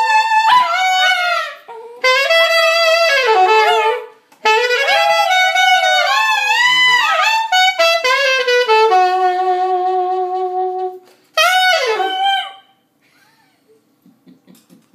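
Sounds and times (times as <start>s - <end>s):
alto saxophone playing blues: 0.0s - 12.7s.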